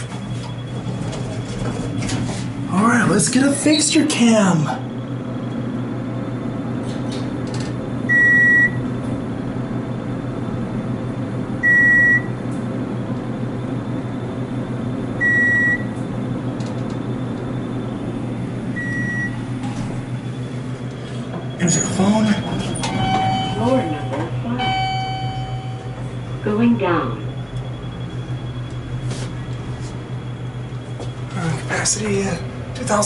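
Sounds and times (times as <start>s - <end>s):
low hum: 7.8s - 32.8s
electronic beep: 21.6s - 26.5s.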